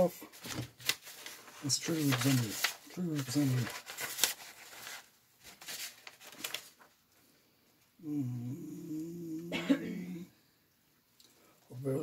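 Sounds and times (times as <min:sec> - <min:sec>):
paper pages rustling: 0:00.0 - 0:07.0
man humming: 0:08.0 - 0:10.3.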